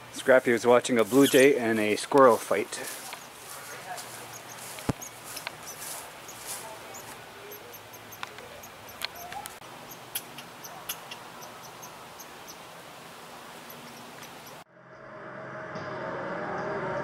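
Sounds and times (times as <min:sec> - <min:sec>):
squirrel chattering: 0:01.0 - 0:01.7, 0:02.4 - 0:14.6.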